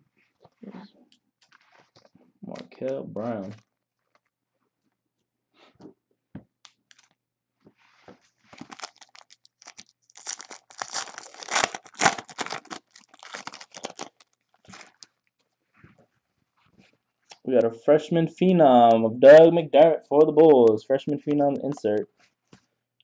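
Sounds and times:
foil wrapper tearing and crinkling: 0:08.5 - 0:15.2.

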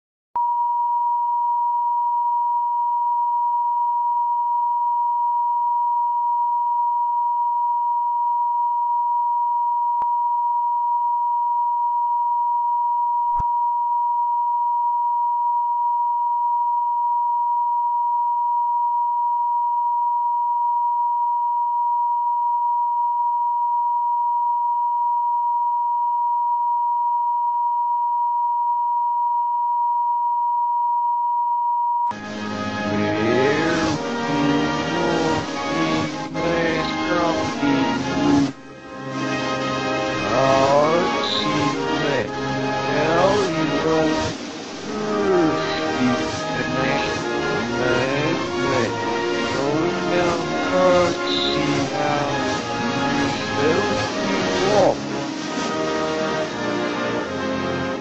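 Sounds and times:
steady test tone: 0:32.1 - 0:58.0.

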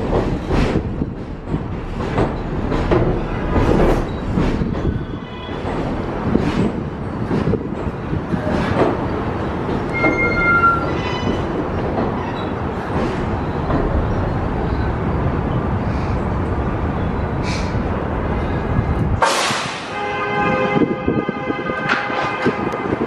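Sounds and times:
subway train rumbling: 0:00.0 - 0:23.0
high wheel squeal: 0:09.9 - 0:11.6.

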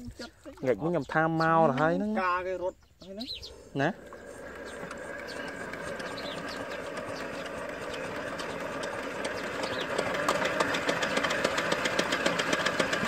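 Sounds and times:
diesel tractor engine knocking: 0:04.4 - 0:13.0.

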